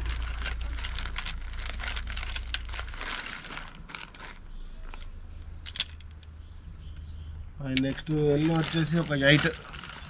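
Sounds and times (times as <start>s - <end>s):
plastic bag crinkling: 0.0s - 6.2s, 7.8s - 10.0s
plastic pipes clicking: 5.6s - 10.0s.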